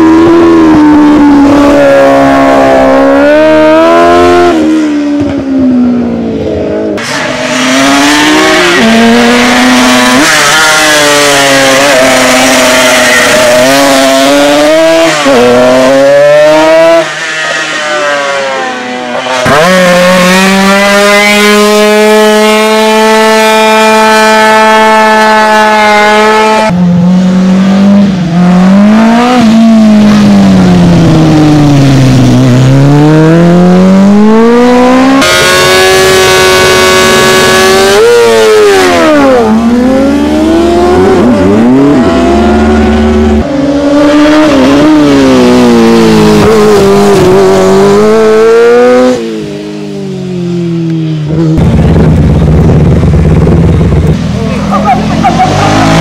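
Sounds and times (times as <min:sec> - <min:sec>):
motorcycle engines revving: 0:00.0 - 0:56.0.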